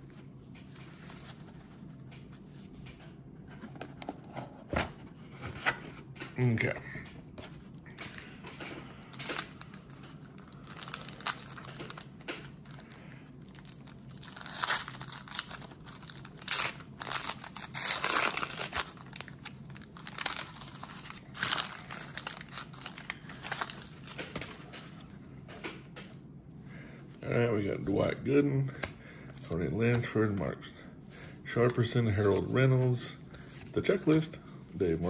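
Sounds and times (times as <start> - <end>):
wax paper wrapper crinkling and tearing: 8.9 - 25.2.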